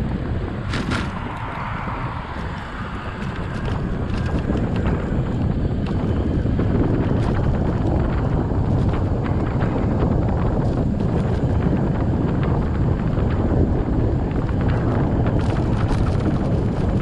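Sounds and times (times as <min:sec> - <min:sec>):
tyres rumbling on road: 0:00.0 - 0:17.0
wind buffeting microphone: 0:00.0 - 0:17.0.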